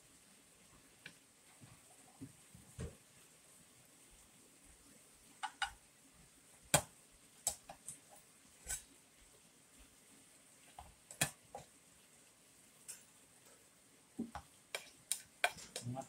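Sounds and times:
cutlery clicking on plate: 14.4 - 15.9.

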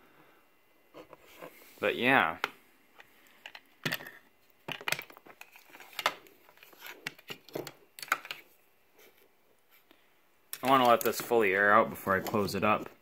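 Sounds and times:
radio parts clicking and knocking: 2.4 - 8.5, 10.5 - 11.4.

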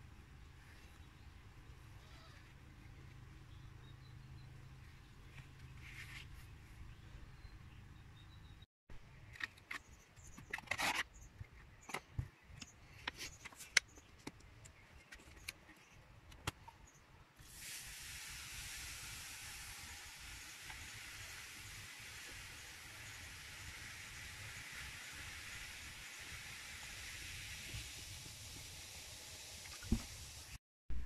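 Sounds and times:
fizzing hiss of foaming liquid: 17.4 - 30.6.

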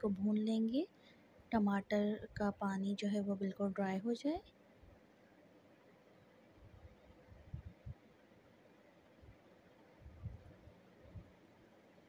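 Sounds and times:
faint steady hum: 0.0 - 12.0
soft low thuds: 6.6 - 8.0, 10.0 - 11.4.

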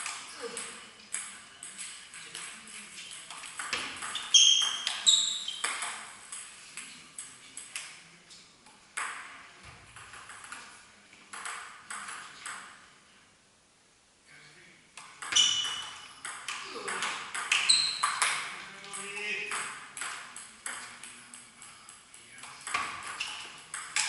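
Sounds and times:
table tennis ball clicking off rackets: 0.0 - 8.0, 15.0 - 24.0
ball bouncing on table: 0.1 - 7.0, 9.0 - 12.8, 15.0 - 21.4, 22.4 - 24.0.

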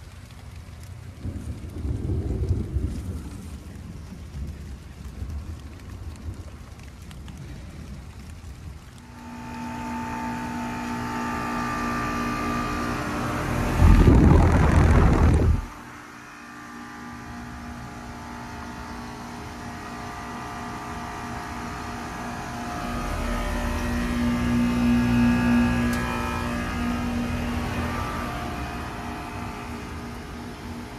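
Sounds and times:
air conditioner condenser hum: 9.0 - 30.9
loud rushing noise: 11.8 - 15.8.

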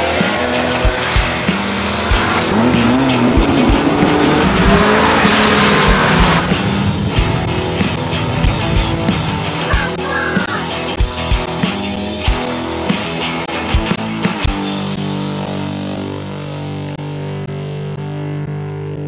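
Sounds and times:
car engine revving hard: 0.0 - 11.6
background music with a beat: 0.0 - 18.5.

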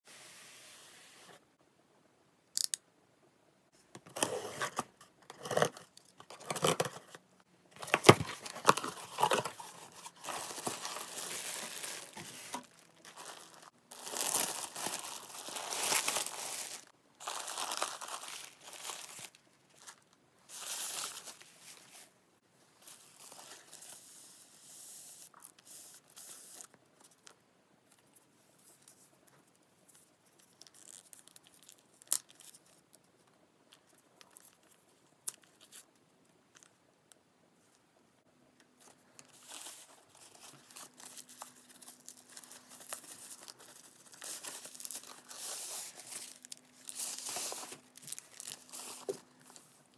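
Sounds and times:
packaging crinkling and tearing: 4.1 - 7.2, 7.8 - 21.9, 39.2 - 49.8.

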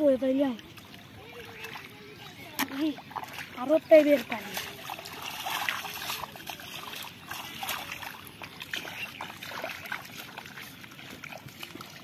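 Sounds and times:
feet splashing through shallow water: 0.0 - 12.0.

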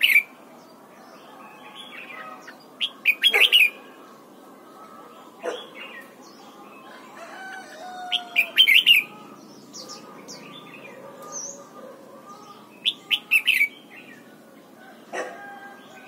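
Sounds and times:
bird chirps: 4.8 - 14.4.

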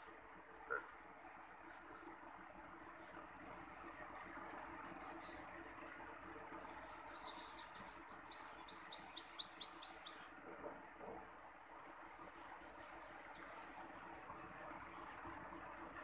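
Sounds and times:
songbird singing: 0.0 - 2.2, 6.6 - 10.3, 12.1 - 14.0.

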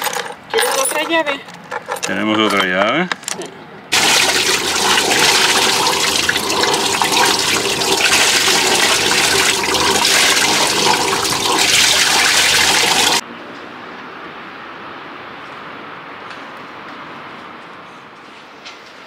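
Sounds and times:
exhaust water gushing: 3.9 - 13.2.

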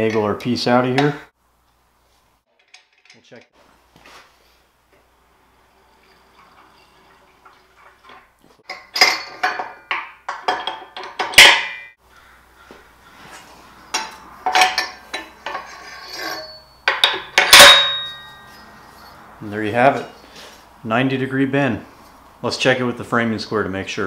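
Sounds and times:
metal parts clanking: 2.5 - 3.5, 5.8 - 11.9, 13.9 - 19.2.

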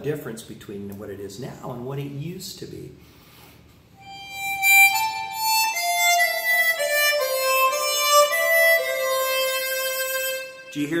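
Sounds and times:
harmonica playing held notes: 4.0 - 11.0.

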